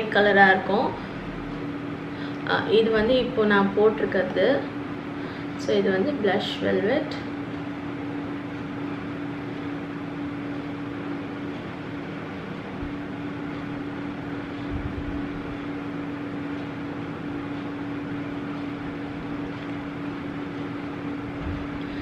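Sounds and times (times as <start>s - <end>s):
fan hiss and hum: 0.0s - 22.0s
soft low thumps: 14.6s - 15.8s, 21.2s - 22.0s.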